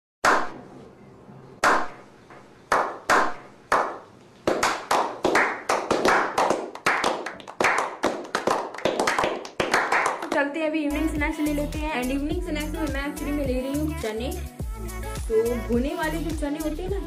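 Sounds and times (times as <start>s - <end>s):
slow hand claps with echo: 2.7s - 10.4s
overlapping clapping: 2.7s - 10.5s.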